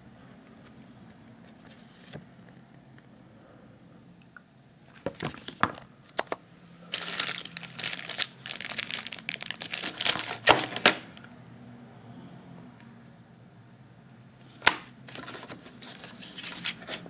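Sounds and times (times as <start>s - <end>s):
plastic bag crinkling: 6.9s - 11.1s.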